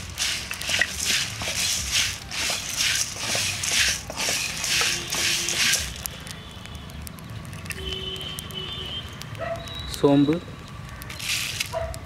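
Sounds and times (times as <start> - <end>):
wooden spatula stirring: 0.0 - 6.1
spices rattling in a metal pan: 0.0 - 6.2, 11.0 - 11.8.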